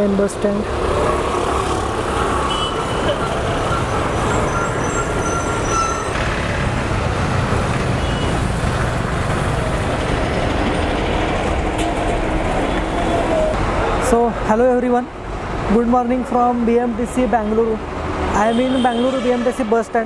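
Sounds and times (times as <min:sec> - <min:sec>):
bus passing close: 0:00.0 - 0:14.0
buses and motorcycles passing: 0:00.0 - 0:18.5.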